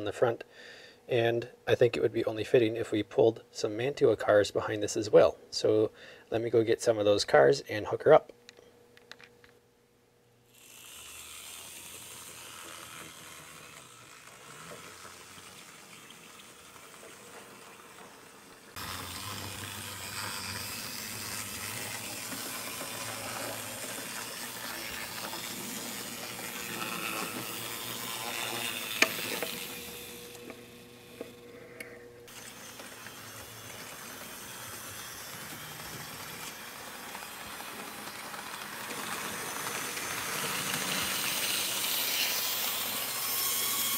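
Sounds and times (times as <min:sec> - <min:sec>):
model train motor whirring: 0:10.4 - 0:43.9.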